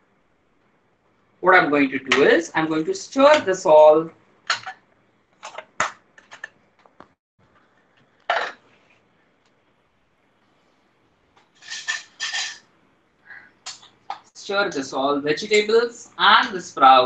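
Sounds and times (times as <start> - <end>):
dishes and utensils clattering: 4.5 - 4.8, 8.3 - 8.6, 11.5 - 12.7.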